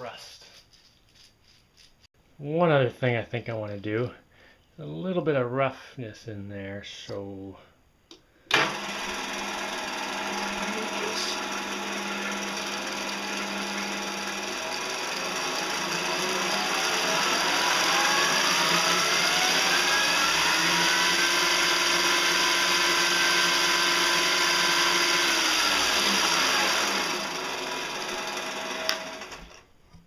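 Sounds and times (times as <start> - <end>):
lathe motor whine: 8.5 - 29.6
click: 28.8 - 29.0.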